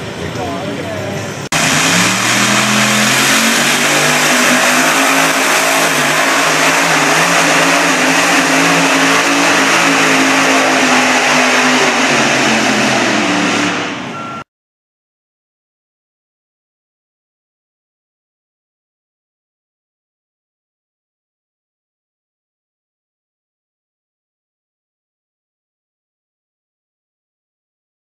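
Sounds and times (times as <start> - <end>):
engine running hard under load: 0.0 - 14.4.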